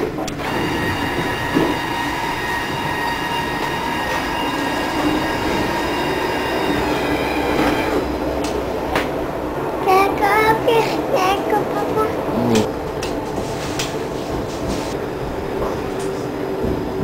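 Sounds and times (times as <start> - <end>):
tram bump: 0.0 - 17.0
tram rumbling on rails: 0.0 - 17.0.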